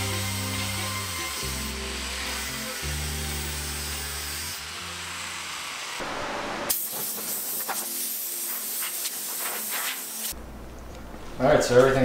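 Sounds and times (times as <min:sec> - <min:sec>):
air blow gun hissing: 0:06.7 - 0:10.4.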